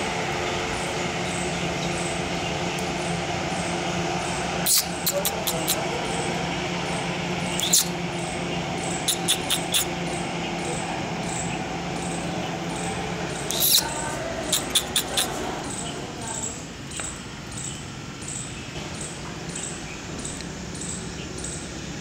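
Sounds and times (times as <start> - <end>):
steady low hum: 0.0 - 22.0
squirrel chirping: 3.0 - 6.3, 7.4 - 21.7.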